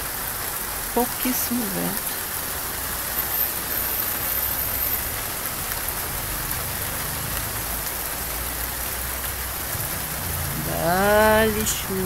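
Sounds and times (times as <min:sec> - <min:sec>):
heavy rain pouring: 0:00.0 - 0:12.0.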